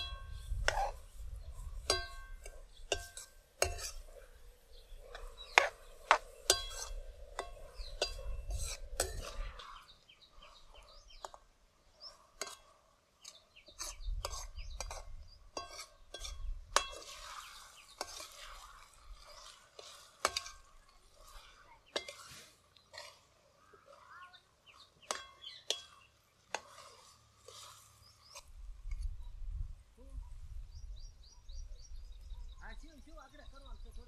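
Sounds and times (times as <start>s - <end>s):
ladle scraping metal pan: 0.0s - 11.3s, 12.0s - 29.1s.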